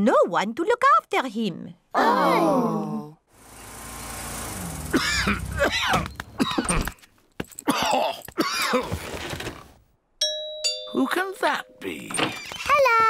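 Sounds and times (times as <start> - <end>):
cartoon car engine: 3.3 - 6.9
cartoon bear coughing and groaning: 4.9 - 7.0, 7.6 - 9.0.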